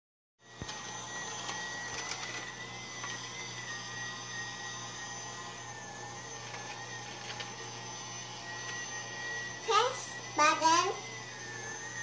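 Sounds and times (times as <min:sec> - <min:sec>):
toy vacuum motor whining: 0:00.4 - 0:12.0.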